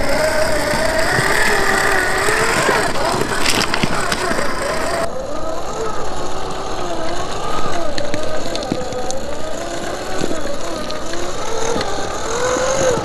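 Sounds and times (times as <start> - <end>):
short crunch: 0.0 - 5.1
toy car electric motor whining: 0.0 - 13.0.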